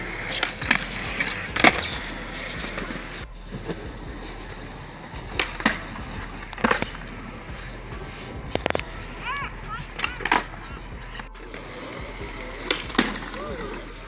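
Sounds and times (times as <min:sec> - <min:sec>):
skateboard clacking on ground: 0:00.0 - 0:14.0
skateboard wheels rolling on concrete: 0:00.0 - 0:14.0.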